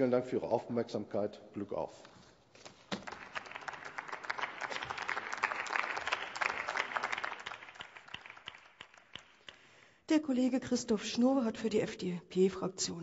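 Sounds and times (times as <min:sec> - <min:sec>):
crowd applauding: 0:02.9 - 0:09.6.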